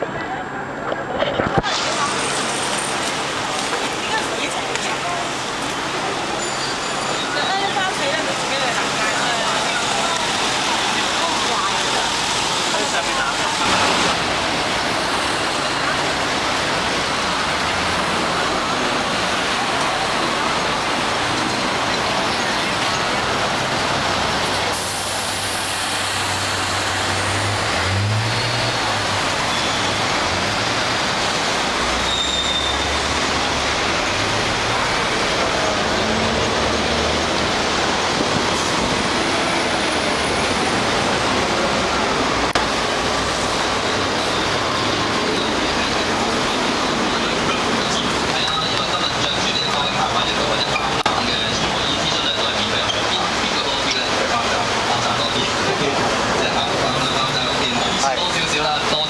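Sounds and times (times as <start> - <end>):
bus and car engines rumbling: 0.0 - 59.0
road noise: 0.0 - 59.0.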